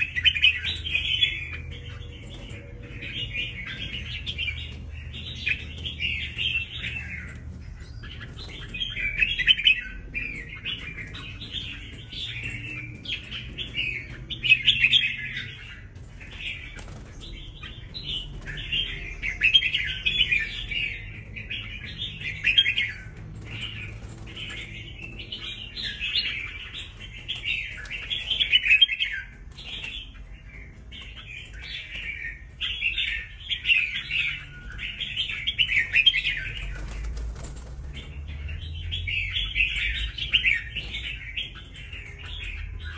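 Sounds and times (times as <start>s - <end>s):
bird chirping: 0.0s - 42.9s.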